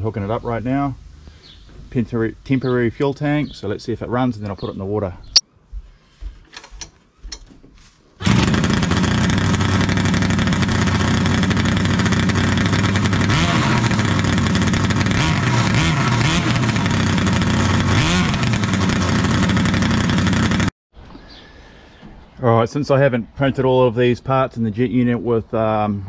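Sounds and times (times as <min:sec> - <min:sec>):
two-stroke engine revving: 0:08.2 - 0:20.7.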